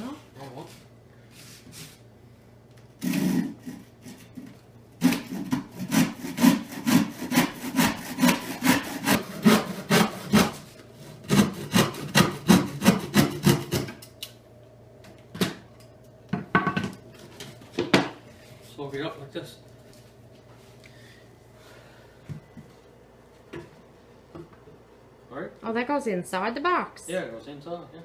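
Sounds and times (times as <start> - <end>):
hand saw rasping through wood: 5.0 - 13.9.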